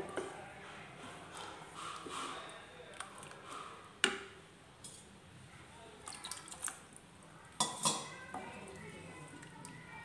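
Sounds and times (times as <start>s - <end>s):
thick mixture plopping: 1.4s - 4.4s, 6.0s - 7.0s.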